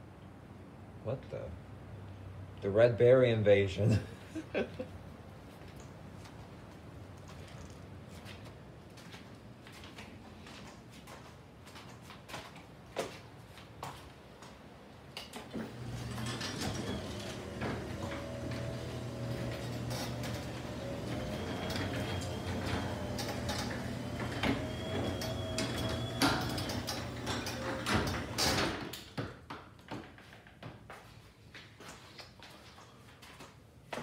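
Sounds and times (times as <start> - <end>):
garage door stopping clicks: 15.2 - 29.2
garage door opener motor hum: 15.5 - 29.0.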